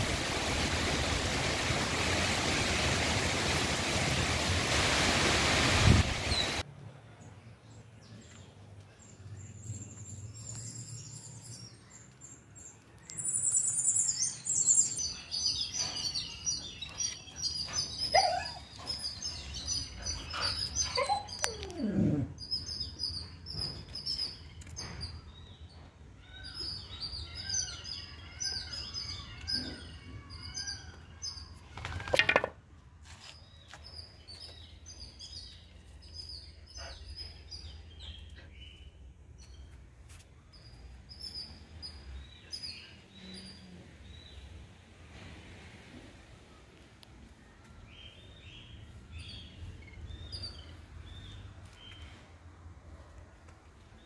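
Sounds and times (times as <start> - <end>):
small birds chirping: 7.2 - 31.8, 33.2 - 44.6, 46.6 - 52.2.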